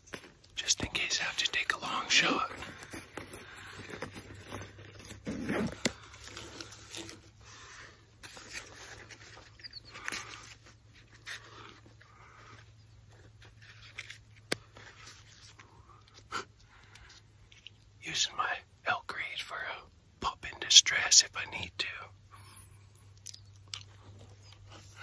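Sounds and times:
rustles: 0:00.0 - 0:18.0
man breathing close to microphone: 0:02.0 - 0:04.9.

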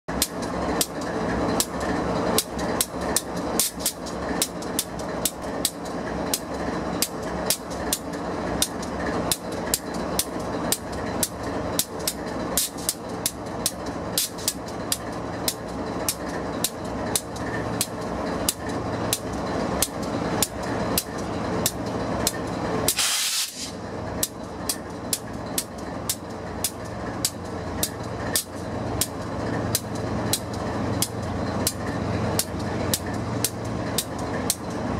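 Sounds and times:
diesel locomotive idling: 0:00.1 - 0:34.9
compressed air hiss: 0:22.9 - 0:23.8.

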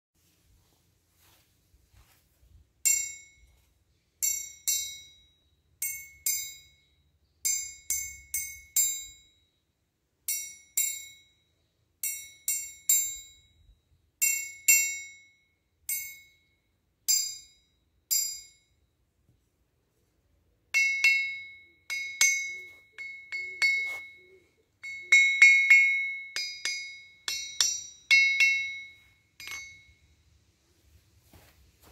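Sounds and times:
ball bearings pinging on anvil: 0:02.8 - 0:09.5, 0:10.2 - 0:18.8, 0:20.7 - 0:30.3
hammer bouncing on anvil: 0:04.2 - 0:09.3, 0:10.3 - 0:11.3, 0:20.8 - 0:30.0.

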